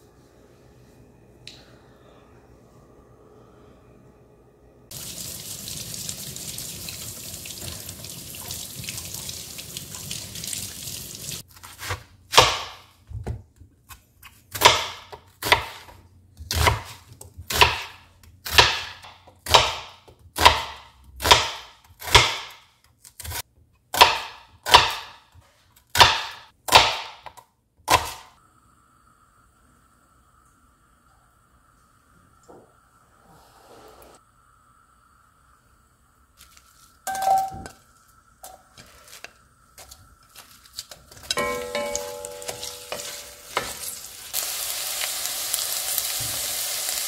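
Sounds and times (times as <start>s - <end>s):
tap water running into sink: 4.9s - 11.4s.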